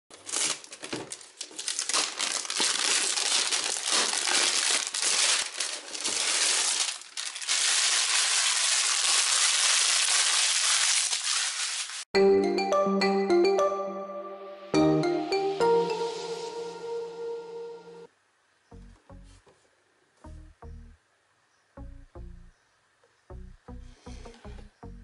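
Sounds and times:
plastic wrap crinkling: 0.1 - 12.1
music jingle: 12.2 - 18.1, 20.2 - 21.0.

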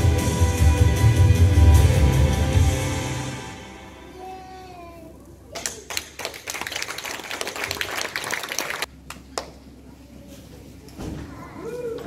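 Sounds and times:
audience applauding: 5.6 - 9.5.

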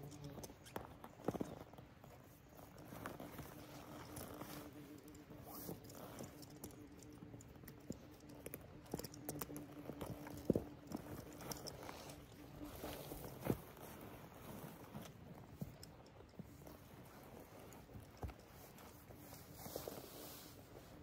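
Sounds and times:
faint steady hum: 0.0 - 21.0
small ticks and crackles: 0.0 - 21.0
clothing and brush rustling: 1.3 - 6.6, 9.8 - 15.8, 16.4 - 21.0.

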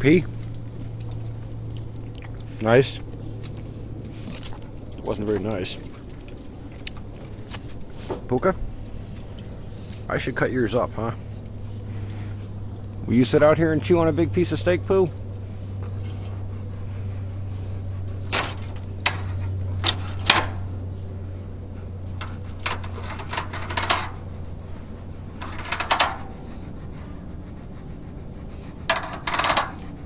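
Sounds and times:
low steady hum: 0.0 - 30.0
metal clanks of grill grate: 22.1 - 24.2, 25.4 - 26.3, 28.9 - 29.9
knife scraping grill grate: 22.1 - 24.3, 25.3 - 26.4.

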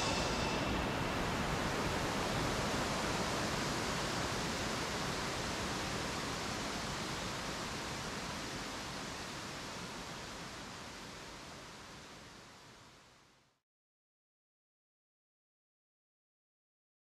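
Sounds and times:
waterfall rushing: 0.0 - 4.1.

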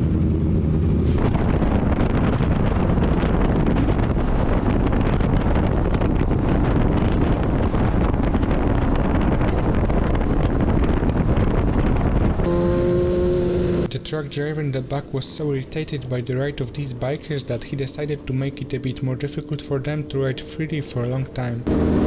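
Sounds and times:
motorcycle engine running: 0.0 - 13.9
wind on microphone: 0.0 - 13.9
steady horn: 12.5 - 13.9.

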